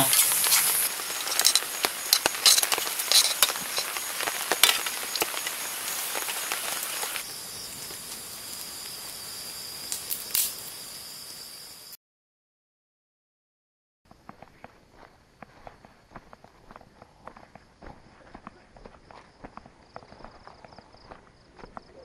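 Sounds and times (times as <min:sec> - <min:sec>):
food sizzling in a pan: 0:00.0 - 0:11.0
campfire crackling: 0:00.0 - 0:11.9
insect trill: 0:00.0 - 0:12.0.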